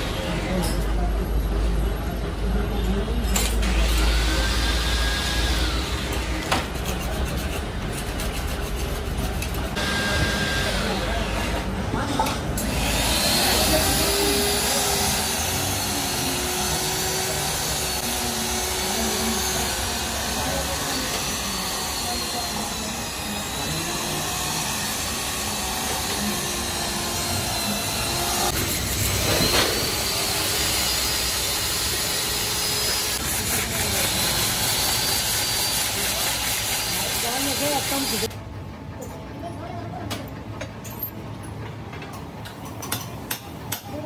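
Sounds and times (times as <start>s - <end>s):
low workshop hum: 0.0s - 44.0s
hand tools scraping and tapping: 6.2s - 9.8s
electric drill drilling into metal: 12.6s - 33.2s
pneumatic die grinder whining: 12.6s - 38.3s.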